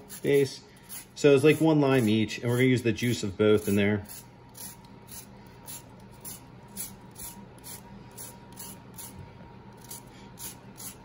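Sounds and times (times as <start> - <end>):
grater scraping rind: 0.0 - 11.0.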